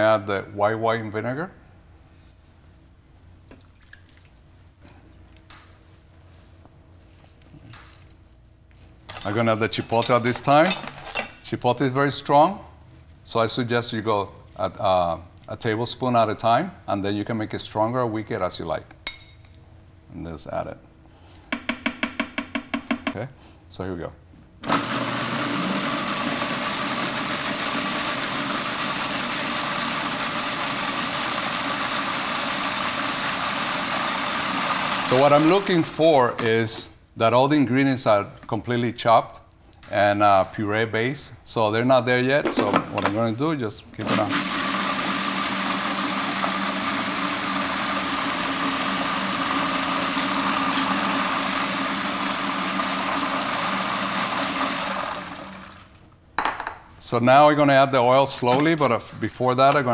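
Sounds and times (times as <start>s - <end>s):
food processor motor running: 24.6s - 35.4s, 44.0s - 55.9s.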